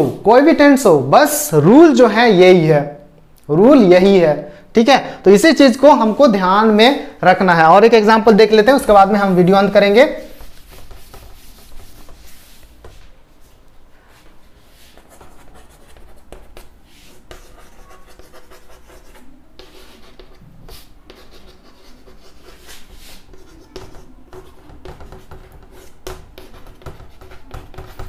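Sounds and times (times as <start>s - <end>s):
chalk scratching on chalkboard: 8.4s - 13.1s, 14.1s - 28.0s.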